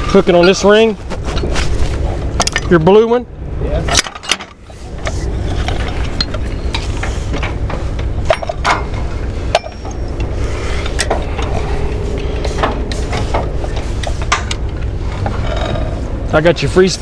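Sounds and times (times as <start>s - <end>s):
diesel engine running: 0.0s - 17.0s
metallic clanks of hooks: 8.2s - 11.6s.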